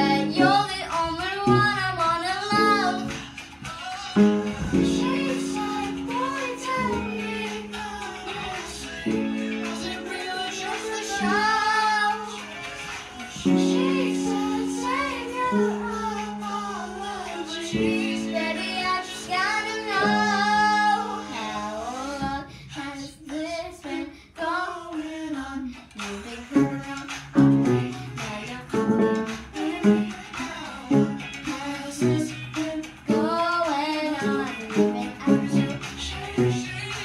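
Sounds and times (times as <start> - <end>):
piano chords: 0.0 - 0.8, 1.4 - 3.4, 4.1 - 21.8, 28.7 - 30.2
girl singing pop song: 0.0 - 37.0.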